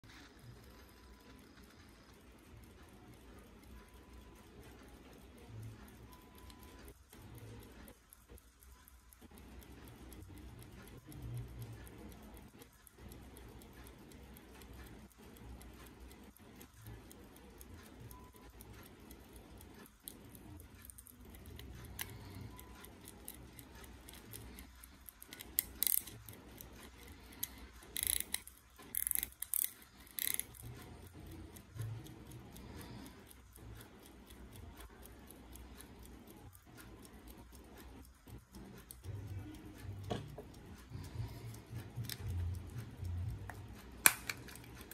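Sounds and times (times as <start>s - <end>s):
pocket watch ticking: 0.0s - 44.9s
watch handling noise: 25.1s - 26.3s, 27.4s - 30.6s, 43.4s - 44.9s.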